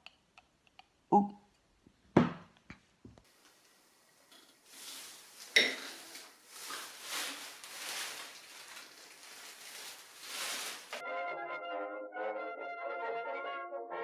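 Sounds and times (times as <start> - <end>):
hands working through hair: 4.6 - 11.0
plastic bag rustling: 4.6 - 11.0
brass music: 11.0 - 14.0.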